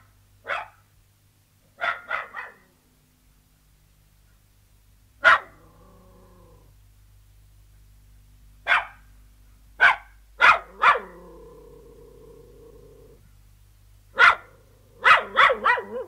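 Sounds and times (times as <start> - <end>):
terrier barking: 0.4 - 0.8, 1.8 - 2.7, 5.2 - 5.8, 8.6 - 9.1, 9.8 - 11.4, 14.1 - 16.0.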